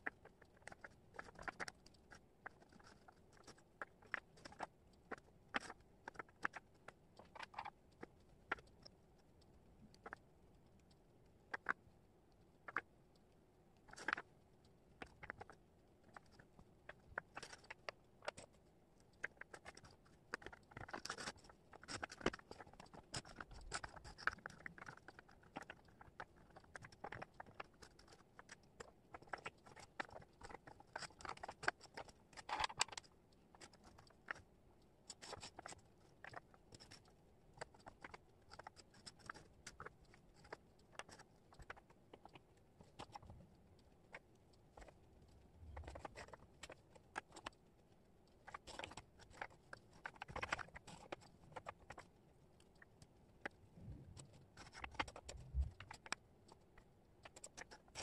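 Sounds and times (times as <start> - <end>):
wooden puzzle pieces clicking: 19.2 - 34.4, 48.4 - 52.1.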